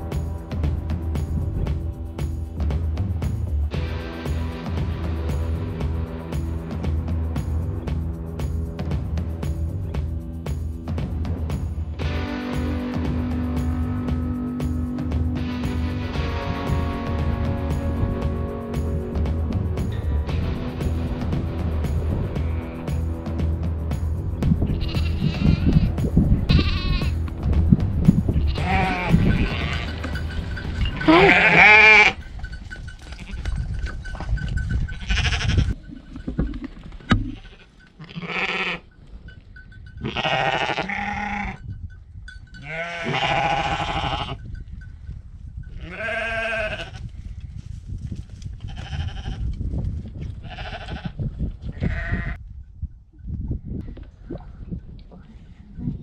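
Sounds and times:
sheep bleating: 22.3 - 23.0, 24.7 - 25.9, 26.5 - 27.2, 28.3 - 30.3, 31.0 - 32.2, 34.9 - 35.8, 37.2 - 38.9, 40.0 - 41.6, 42.6 - 44.4, 45.8 - 47.0, 48.7 - 49.4, 50.4 - 52.4.

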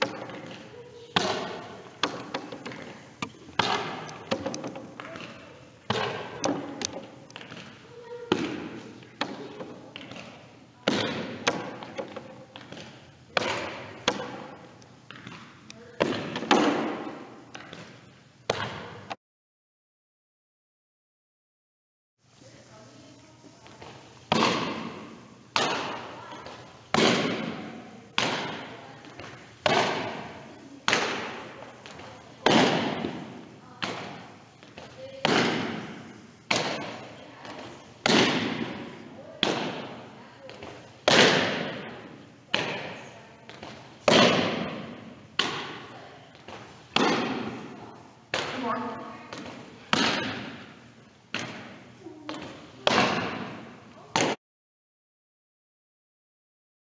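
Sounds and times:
loud ball thuds: 0.0 - 19.1, 23.7 - 54.4
sharp smack with echo: 41.1 - 41.8.

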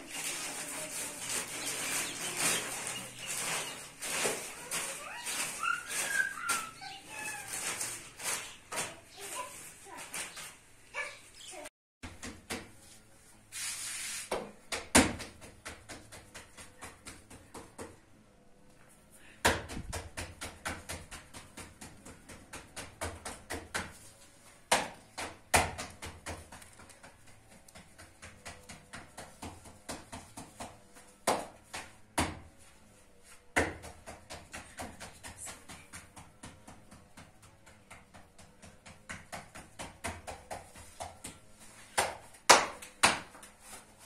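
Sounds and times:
hands patting dough flat: 14.2 - 18.1, 19.4 - 44.0.

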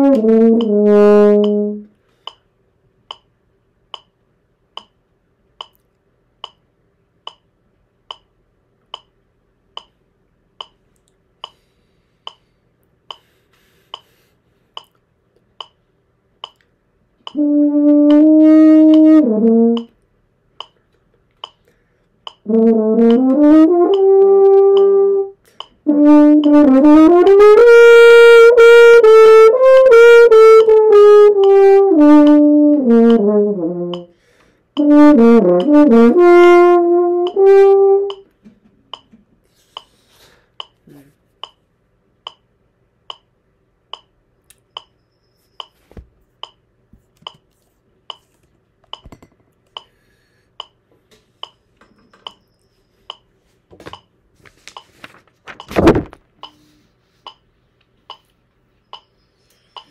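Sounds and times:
french horn playing held notes: 0.0 - 1.9, 17.3 - 19.9, 22.5 - 25.3, 25.9 - 34.1, 34.8 - 38.2
metronome clicking: 0.0 - 2.5, 3.1 - 3.3, 3.9 - 4.2, 4.8 - 5.0, 5.6 - 5.8, 6.4 - 7.5, 8.1 - 10.0, 10.6 - 10.8, 11.4 - 11.6, 12.2 - 12.5, 13.1 - 13.3, 13.9 - 14.2, 14.8 - 15.0, 15.6 - 15.8, 16.4 - 20.0, 20.6 - 20.8, 21.4 - 27.0, 29.4 - 33.3, 33.9 - 39.2, 39.8 - 40.0, 40.6 - 40.8, 41.4 - 41.6, 42.2 - 43.3, 43.9 - 45.0, 45.6 - 45.8, 46.4 - 46.6, 48.1 - 48.3, 48.9 - 50.0, 50.6 - 50.8, 51.4 - 53.3, 56.4 - 58.3, 58.9 - 59.9.

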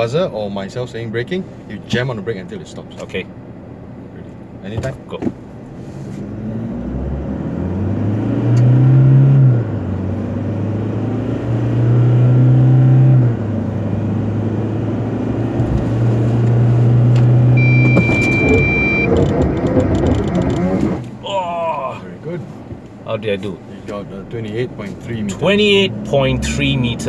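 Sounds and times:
diesel engine at full throttle: 6.1 - 21.4
electronic buzzer: 17.6 - 19.2.

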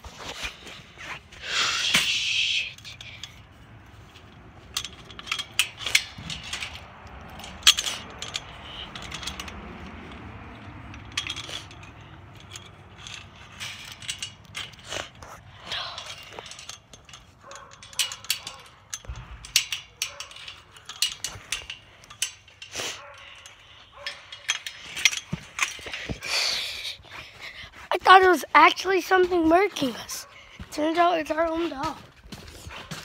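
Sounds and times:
chain-link fence wire rattling: 0.1 - 33.0.

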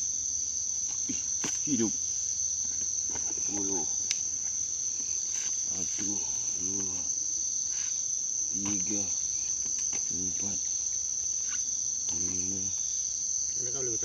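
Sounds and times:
night insects trilling: 0.0 - 14.0.

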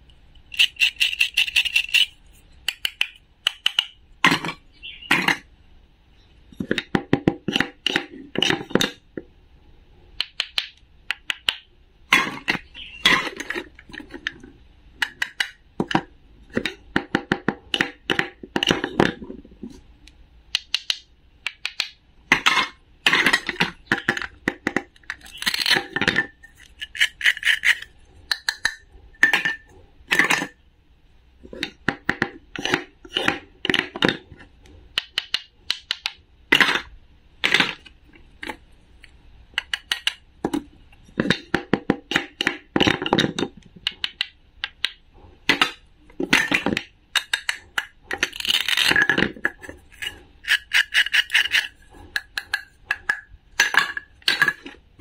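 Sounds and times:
plastic toy food clicking: 0.4 - 4.0, 26.6 - 28.8, 39.6 - 40.2.

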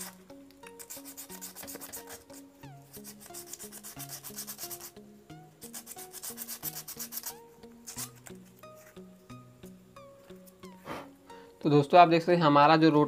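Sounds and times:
background music with stepping melody: 0.0 - 13.0
hand sanding metal: 0.8 - 4.9, 5.6 - 8.1.

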